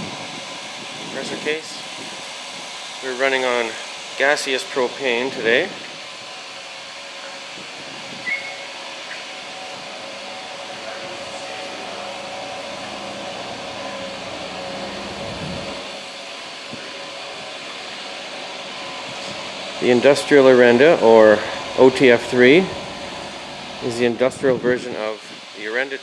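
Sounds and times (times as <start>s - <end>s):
machinery hiss and hum: 0.0s - 26.0s.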